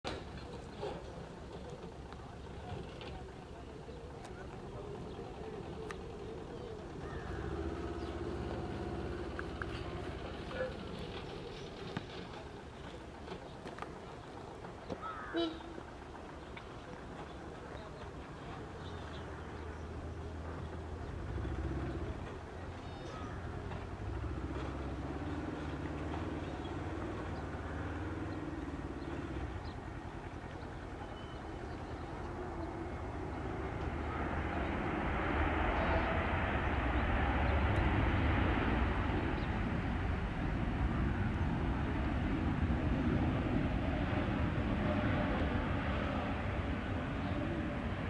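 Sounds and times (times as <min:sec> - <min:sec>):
steady low rumble: 0:28.5 - 0:48.0
jet engines: 0:28.6 - 0:48.0.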